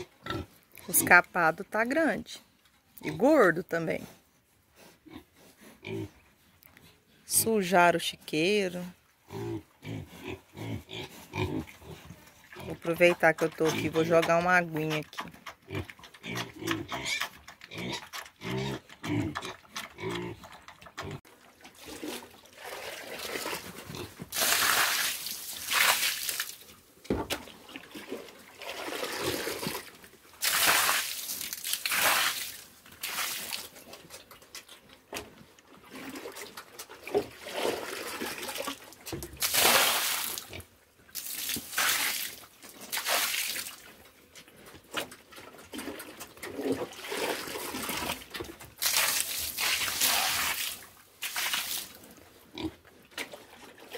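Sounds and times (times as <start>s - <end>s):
pigs grunting: 5.0s - 6.2s, 9.3s - 12.8s, 15.6s - 21.2s
water splashing on concrete: 21.9s - 26.6s, 28.7s - 33.7s, 37.4s - 43.8s, 46.9s - 52.0s.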